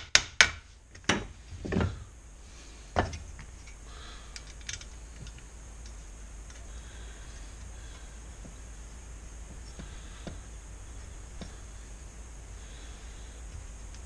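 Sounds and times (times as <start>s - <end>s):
metal parts knocking and thudding: 0.0s - 2.1s, 3.0s - 3.8s.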